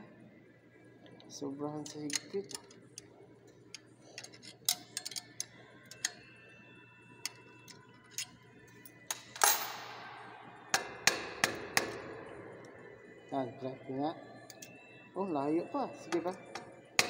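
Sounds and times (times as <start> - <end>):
wrench clicking on metal nuts: 3.7 - 6.2.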